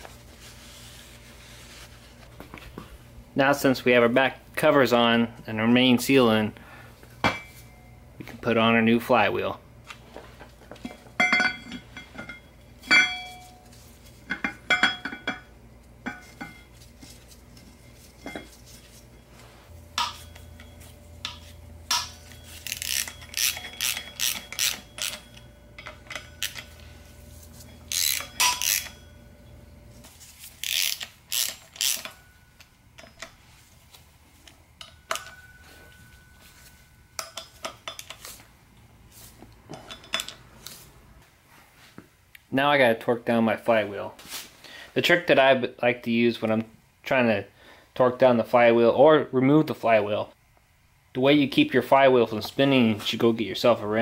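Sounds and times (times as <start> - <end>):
metallic clinks of bolts and tools: 20.0 - 26.8, 34.8 - 38.3
socket ratchet clicking: 30.6 - 32.2.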